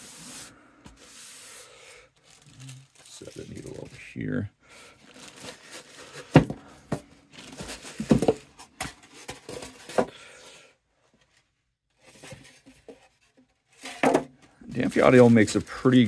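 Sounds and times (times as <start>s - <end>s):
plastic wrap crinkling: 2.0s - 4.1s, 5.0s - 6.5s, 14.7s - 16.0s.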